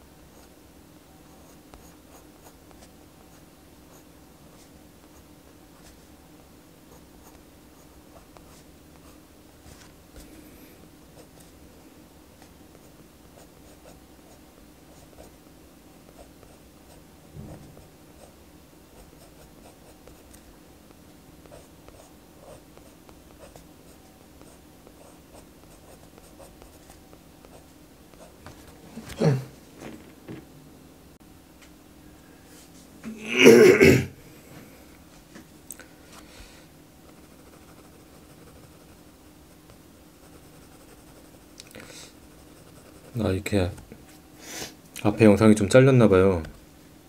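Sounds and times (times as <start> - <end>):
faint steady hum: 0.0 - 47.0
pen scratching on paper: 16.1 - 20.4, 21.4 - 28.4, 37.2 - 39.0, 40.2 - 41.5, 42.3 - 43.2
throat clearing: 29.0 - 29.5, 33.0 - 34.2.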